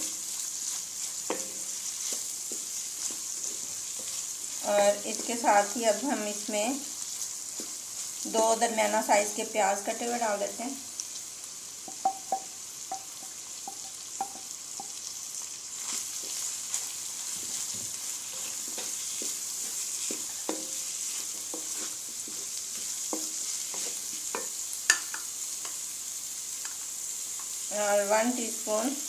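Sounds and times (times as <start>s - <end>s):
food sizzling in a pan: 0.0s - 29.0s
wooden spoon knocking on pan: 1.2s - 1.7s, 11.8s - 15.0s, 20.1s - 20.8s, 23.1s - 25.3s.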